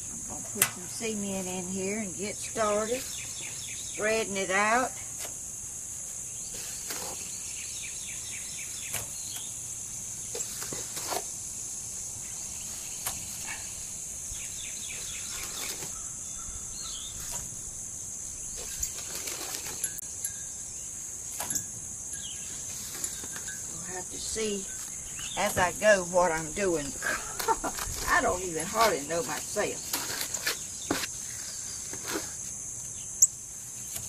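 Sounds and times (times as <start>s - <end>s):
high-pitched insect chorus: 0.0s - 34.0s
bird chirping: 0.8s - 4.9s, 6.2s - 10.6s, 12.2s - 31.9s
cement scraping and patting: 6.5s - 7.4s, 10.3s - 11.3s, 14.8s - 16.1s, 18.5s - 20.0s, 22.5s - 32.6s.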